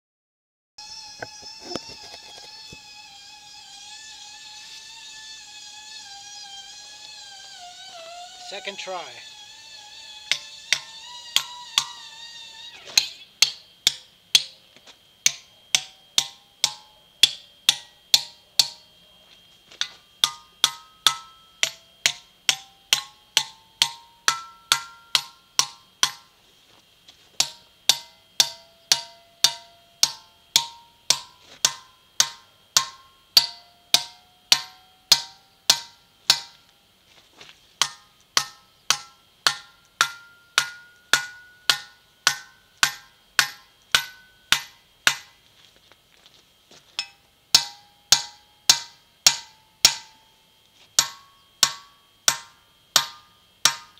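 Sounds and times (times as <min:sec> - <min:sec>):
hammer striking steel wedges: 0:09.8 - 0:14.6, 0:15.2 - 0:18.9, 0:19.7 - 0:26.3, 0:27.4 - 0:36.7, 0:37.8 - 0:45.4, 0:47.0 - 0:53.9.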